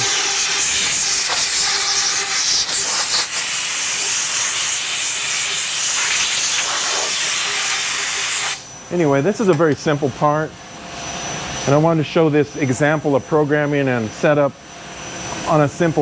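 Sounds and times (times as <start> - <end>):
compressed air blow gun hissing: 0.0 - 8.6.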